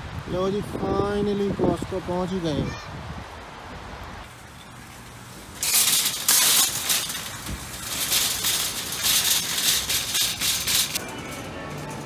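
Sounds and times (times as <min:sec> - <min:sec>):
wire shopping trolley rattling: 0:04.3 - 0:12.0.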